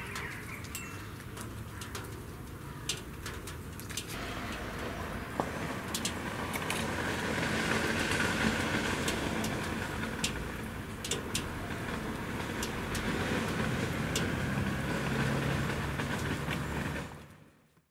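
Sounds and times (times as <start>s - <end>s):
city traffic hum: 0.0s - 17.9s
low engine drone: 4.1s - 17.4s.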